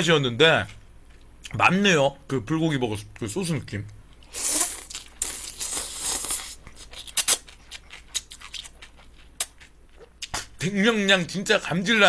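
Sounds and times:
wet chewing and mouth clicks: 0:04.2 - 0:10.5
person slurping noodles: 0:04.3 - 0:06.6.

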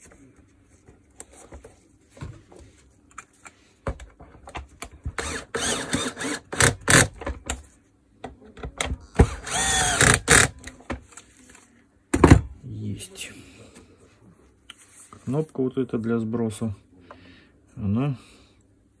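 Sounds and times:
cordless drill driving screws: 0:05.2 - 0:07.1, 0:09.2 - 0:10.5.

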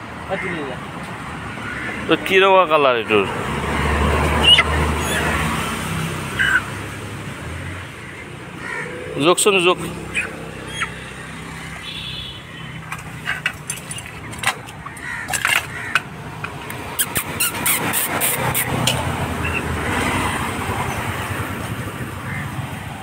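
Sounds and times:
low traffic engine hum: 0:00.0 - 0:23.0
chickens clicking and rustling in basket: 0:12.8 - 0:16.8.

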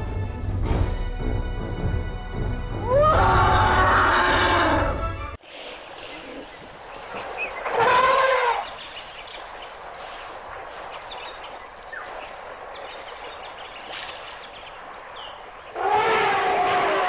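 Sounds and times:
elephant trumpeting: 0:02.8 - 0:05.0, 0:07.6 - 0:08.7, 0:15.7 - 0:17.0.

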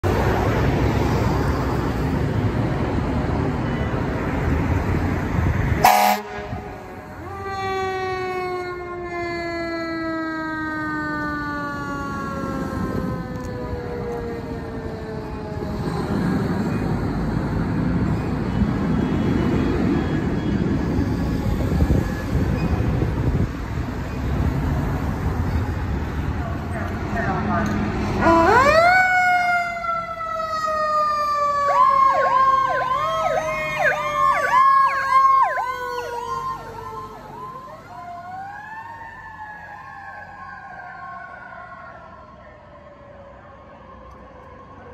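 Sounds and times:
street traffic: 0:00.0 - 0:44.9
fire engine horn blast: 0:05.8 - 0:07.1
siren wailing: 0:05.8 - 0:17.5, 0:28.2 - 0:44.9.

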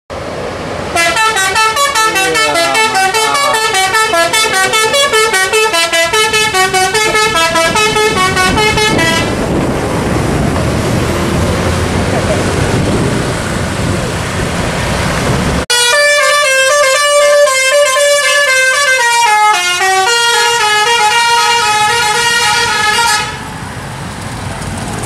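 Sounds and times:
bus engine: 0:00.1 - 0:25.0
road noise: 0:00.1 - 0:25.0
bus horn playing fast melody: 0:00.9 - 0:09.5, 0:15.7 - 0:23.5.

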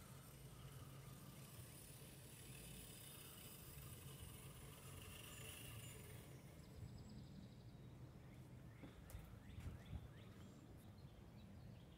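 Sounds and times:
faint high hiss and whine: 0:00.0 - 0:07.6
wind rumble on microphone: 0:09.4 - 0:10.3.

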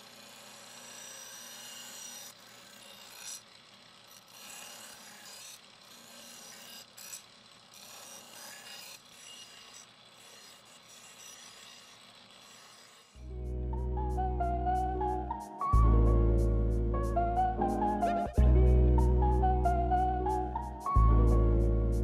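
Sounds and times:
knife scraping on grinder wheel: 0:00.0 - 0:13.2.

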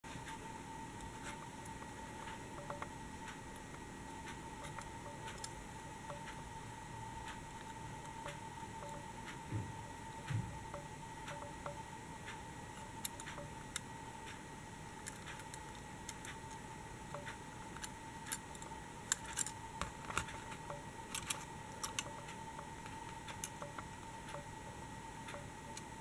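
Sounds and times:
faint high whine: 0:00.1 - 0:26.0
clicks of handled toy models: 0:21.1 - 0:22.1.

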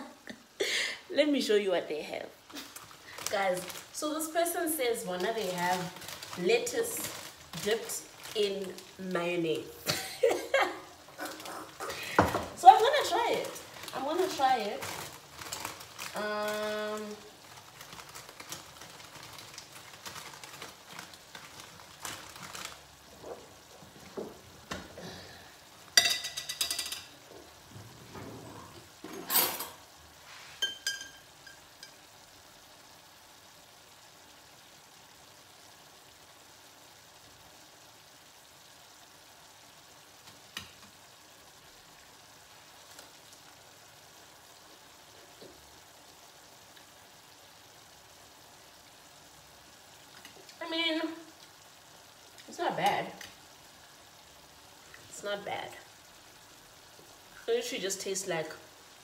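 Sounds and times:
lettuce leaves crackling and rustling: 0:02.4 - 0:24.8.

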